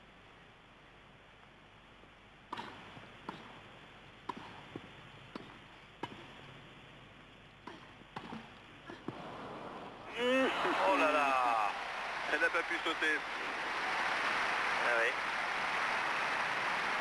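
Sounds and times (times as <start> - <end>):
tennis ball struck by racket: 4.2 - 6.4, 7.6 - 9.2.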